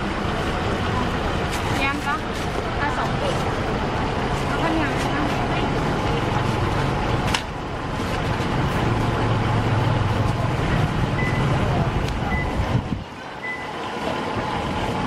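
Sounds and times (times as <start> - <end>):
vehicle engine rumbling: 0.0 - 15.0
short high beeps: 11.2 - 11.5, 12.3 - 12.6, 13.4 - 13.8.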